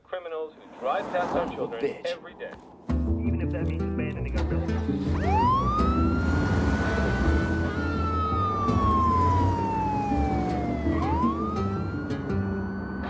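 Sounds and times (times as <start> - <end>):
background music with low notes: 2.9 - 13.0
police siren wailing: 5.0 - 13.0.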